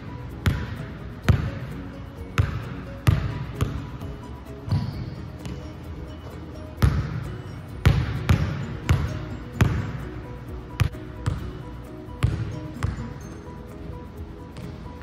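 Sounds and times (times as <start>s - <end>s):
background music: 0.0s - 15.0s
basketball bouncing on wood floor: 0.4s - 0.7s, 2.4s - 3.8s, 6.8s - 7.2s, 7.8s - 9.9s, 10.8s - 11.5s, 12.2s - 13.0s.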